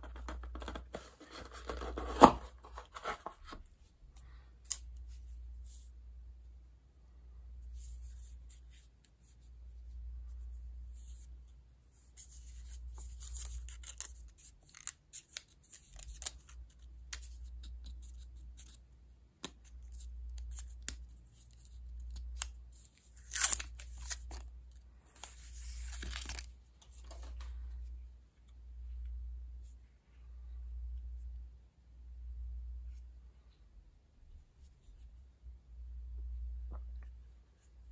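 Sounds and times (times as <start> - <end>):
plastic film peeling: 23.2 - 24.5.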